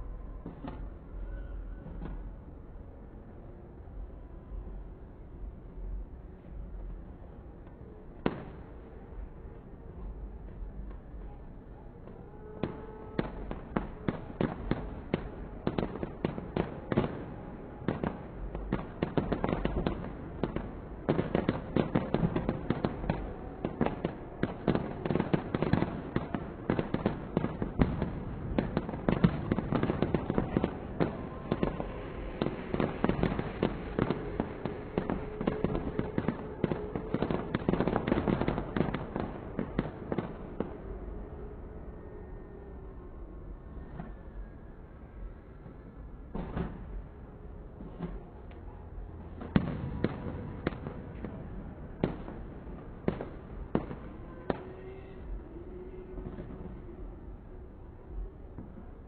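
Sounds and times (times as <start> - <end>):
fireworks cracking and banging: 0.4 - 2.4, 10.0 - 41.0, 46.3 - 57.5.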